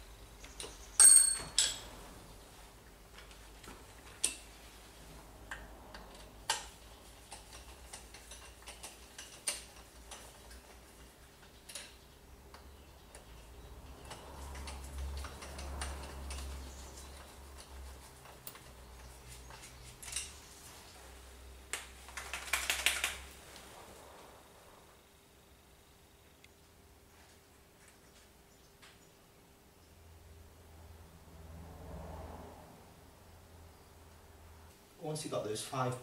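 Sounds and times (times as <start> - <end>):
light clicks and taps of hand tools: 5.5 - 20.4.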